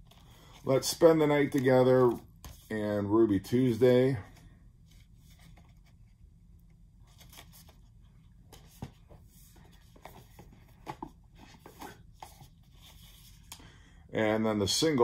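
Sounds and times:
rustling of paper sleeves: 7.0s - 13.5s.

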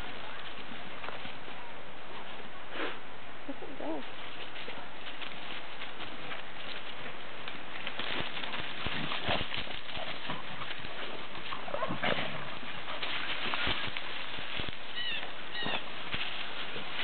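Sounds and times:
rustling dry leaves and grass: 0.0s - 17.0s
paws thudding on ground: 4.0s - 17.0s.

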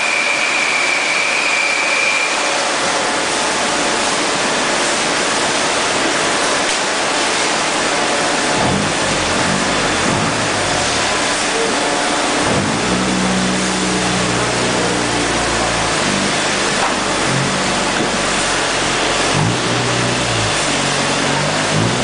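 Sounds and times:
bottling line machinery noise: 0.0s - 22.0s
low wavering hum: 8.1s - 22.0s.

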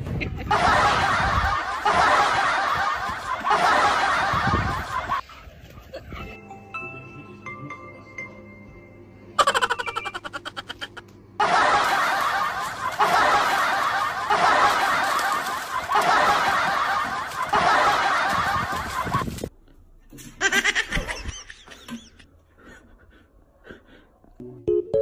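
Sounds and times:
loud laughter: 0.0s - 5.2s, 9.4s - 19.4s, 20.4s - 23.3s.

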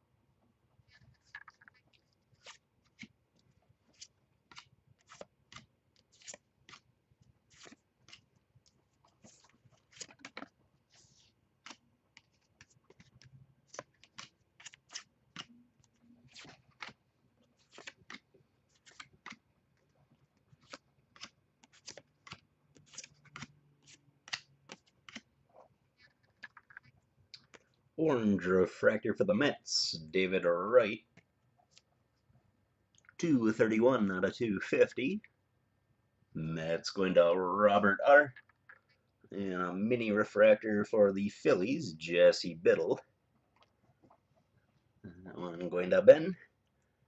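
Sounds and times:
cards flipped by hand: 0.9s - 6.9s, 7.5s - 19.4s, 20.5s - 25.3s, 26.0s - 27.7s.

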